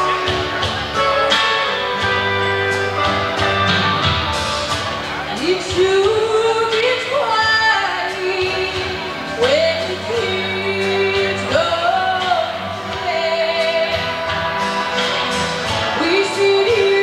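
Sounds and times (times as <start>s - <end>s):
instrumental backing: 0.0s - 17.0s
person singing: 5.3s - 17.0s.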